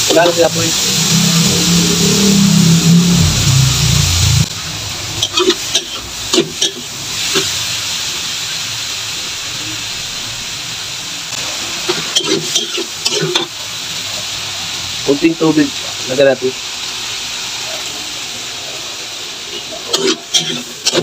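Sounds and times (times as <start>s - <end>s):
vegetables sizzling in oil: 0.0s - 21.0s
metal spatula scraping wok: 4.4s - 7.6s, 11.9s - 13.5s, 19.5s - 21.0s.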